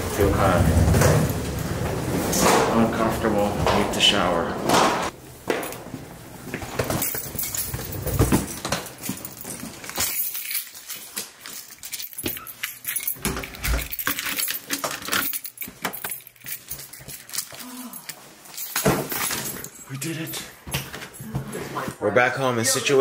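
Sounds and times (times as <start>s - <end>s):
metallic jangling: 6.8s - 20.6s.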